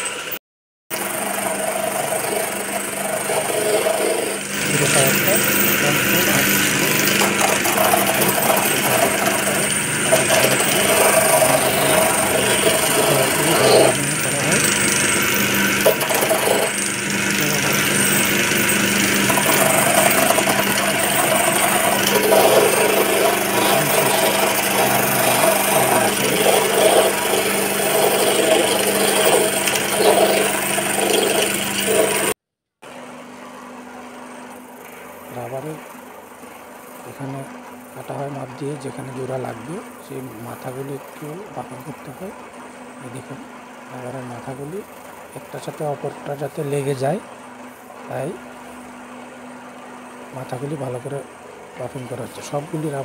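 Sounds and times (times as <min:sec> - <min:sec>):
buffing machine grinding rubber: 0:00.0 - 0:32.4
motor humming: 0:00.0 - 0:53.0.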